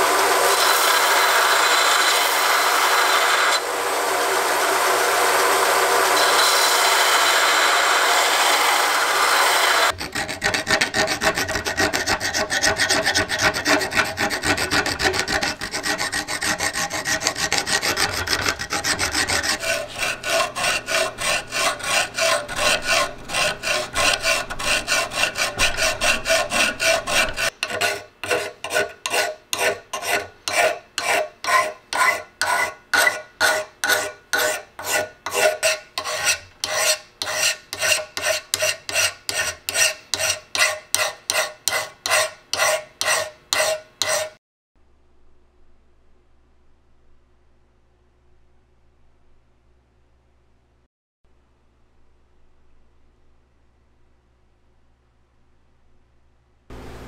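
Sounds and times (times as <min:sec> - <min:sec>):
hand file rasping on steel: 0:09.8 - 0:44.4.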